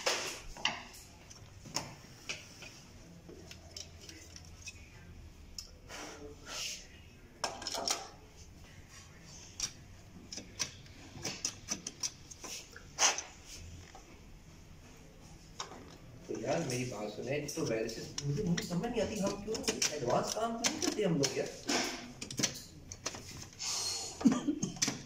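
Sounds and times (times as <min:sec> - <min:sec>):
plastic and metal parts clattering: 0:17.6 - 0:23.6.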